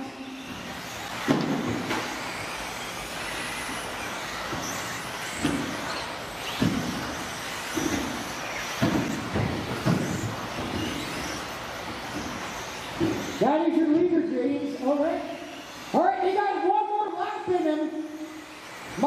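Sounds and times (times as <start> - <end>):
faint high whines: 0.0 - 13.6
rc car motor and tyre noise: 0.0 - 19.0
cars clattering thuds: 0.6 - 13.4.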